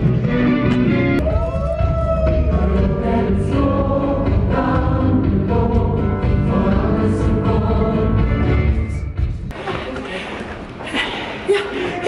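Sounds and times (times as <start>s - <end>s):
ensemble singing in chorus: 2.1s - 9.0s.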